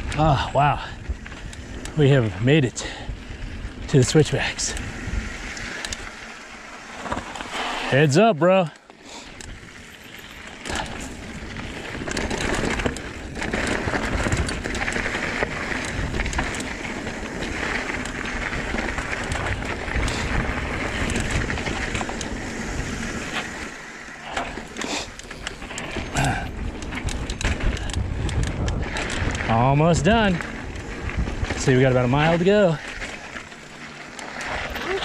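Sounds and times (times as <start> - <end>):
bike rattling and clicking: 0.0 - 35.0
tyres rolling over dirt and rocks: 0.0 - 35.0
wind on microphone: 26.1 - 32.1.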